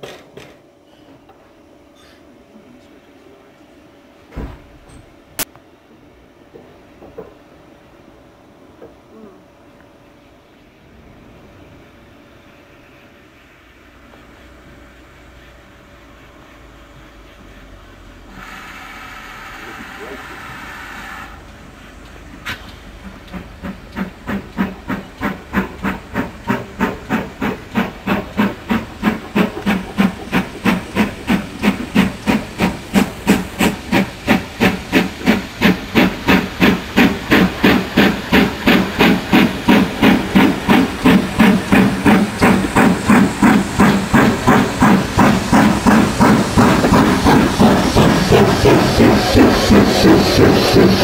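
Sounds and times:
hissing steam: 0:11.0 - 0:51.0
steam locomotive chuffing: 0:12.3 - 0:51.0.

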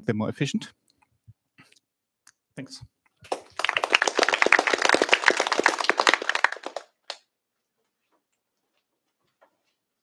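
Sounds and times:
audience applauding: 0:03.3 - 0:07.2.

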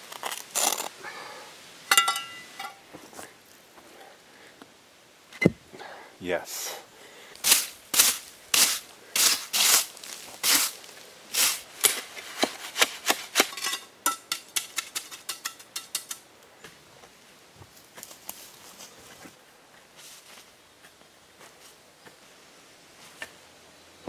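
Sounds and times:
hand brush sweeping grit: 0:07.4 - 0:13.5
steel trowel scraping mortar: 0:07.4 - 0:16.2.

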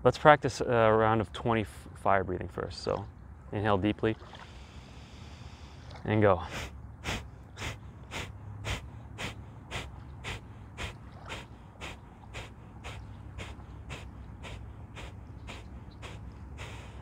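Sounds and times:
man exhaling forcefully through nose: 0:06.5 - 0:17.0.

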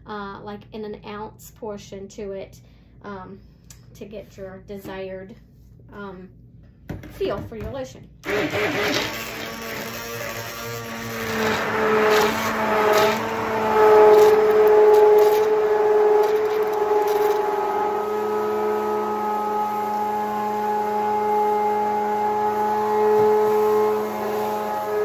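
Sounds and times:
immersion blender motor whine: 0:08.2 - 0:25.0.

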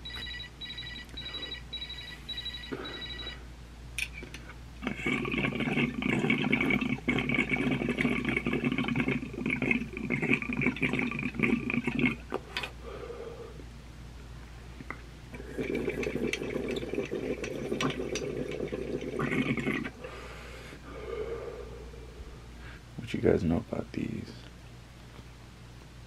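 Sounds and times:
water bubbling through glass pipe: 0:04.8 - 0:12.3, 0:15.3 - 0:20.0.

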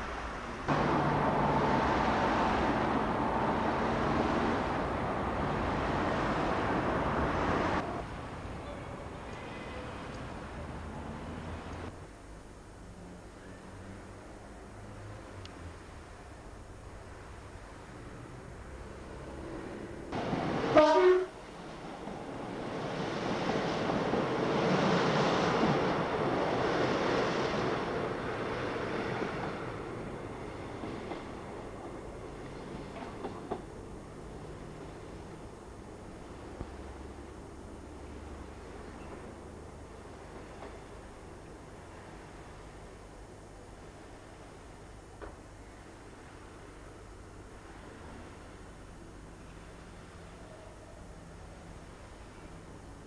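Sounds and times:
cars passing: 0:00.0 - 0:11.9, 0:17.2 - 0:41.4.

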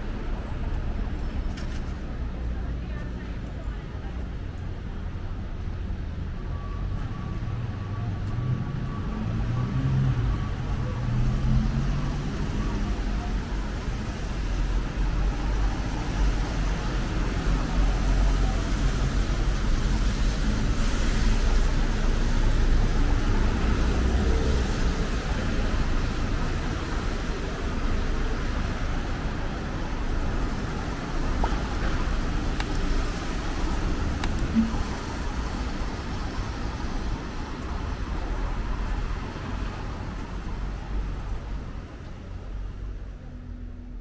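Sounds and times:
traffic rumble: 0:00.0 - 0:44.0
tyre hiss on wet road: 0:19.8 - 0:22.9.

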